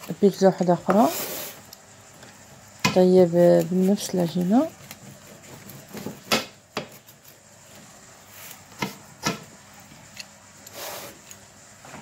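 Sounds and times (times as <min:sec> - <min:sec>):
pizza cutter scraping: 0:03.2 - 0:07.5.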